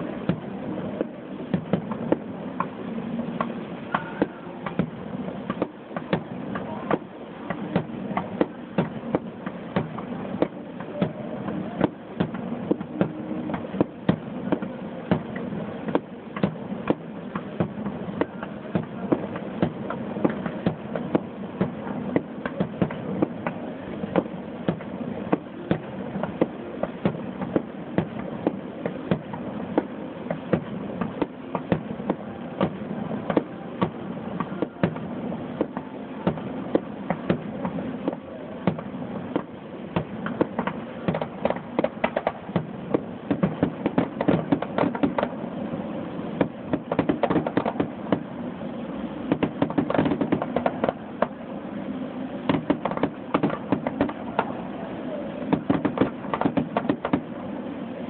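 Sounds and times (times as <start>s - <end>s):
fireworks bursting bangs: 0.0s - 58.0s
steady background noise: 0.0s - 58.0s.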